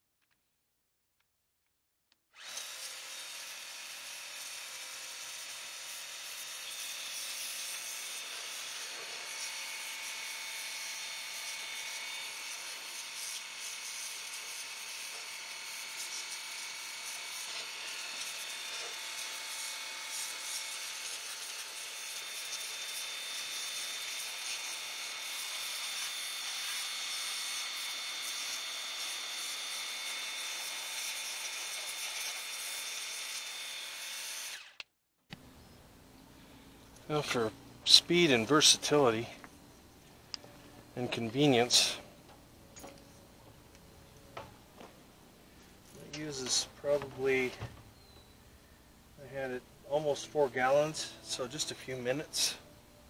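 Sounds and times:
electric pump whining: 2.4 - 35.5.

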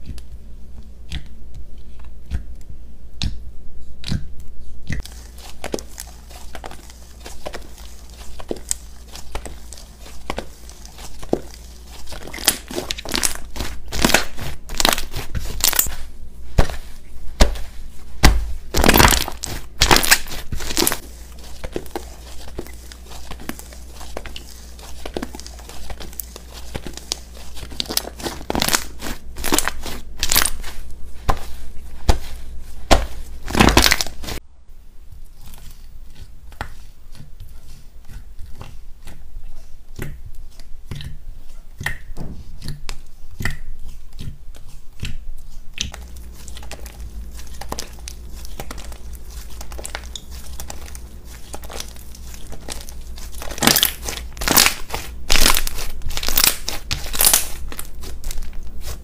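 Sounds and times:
slime crackling and popping: 4.9 - 34.4, 41.8 - 59.0.

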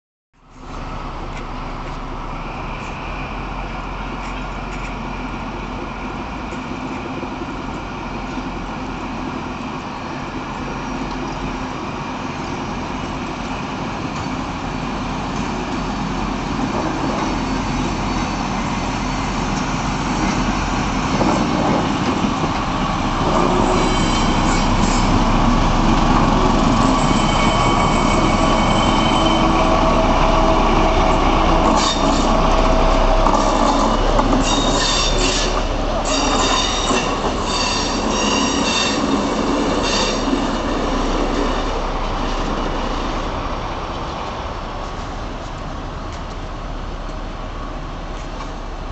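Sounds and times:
diesel locomotive running slowly: 0.4 - 48.9
train wheels rolling over rails: 3.6 - 48.9
wheels squealing on rails: 9.3 - 43.6.

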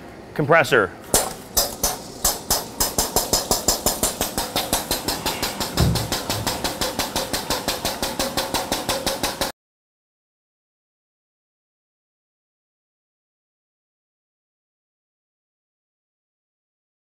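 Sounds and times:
diaphragm pump chattering: 1.1 - 9.5.

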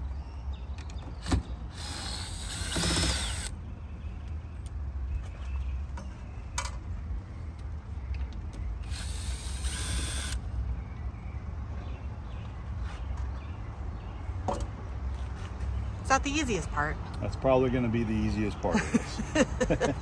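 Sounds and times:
cordless drill motor whine: 1.7 - 3.5, 8.9 - 10.4.

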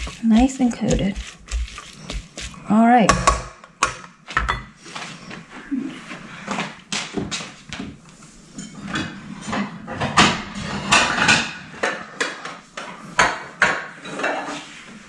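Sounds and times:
dishes and utensils clattering: 8.6 - 12.5, 13.2 - 14.7.

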